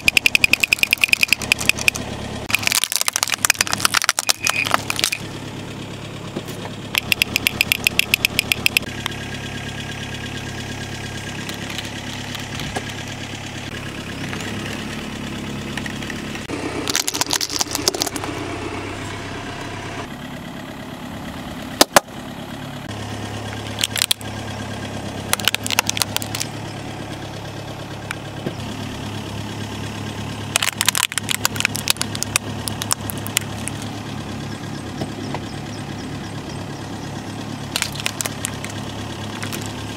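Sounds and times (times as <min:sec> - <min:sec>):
tyre crushing plastic toys: 0:00.0 - 0:05.2, 0:16.8 - 0:18.2, 0:23.8 - 0:24.2, 0:25.3 - 0:26.5, 0:30.5 - 0:33.9, 0:37.7 - 0:38.8, 0:39.4 - 0:39.8
car engine idling: 0:00.0 - 0:39.9.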